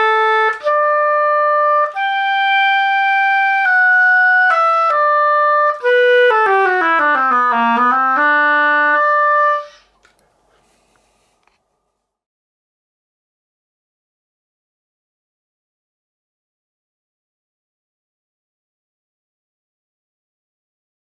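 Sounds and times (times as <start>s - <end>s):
solo oboe playing: 0.0s - 10.0s.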